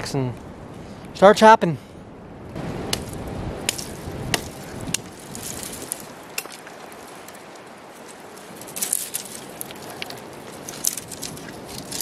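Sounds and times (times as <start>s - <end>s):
wood sticks chopping: 2.9s - 12.0s
background rustling: 3.8s - 12.0s.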